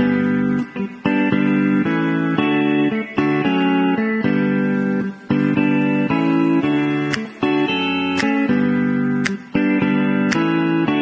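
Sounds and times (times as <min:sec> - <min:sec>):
plucked guitar notes: 0:00.0 - 0:11.0
sharp percussive click: 0:07.0 - 0:10.7.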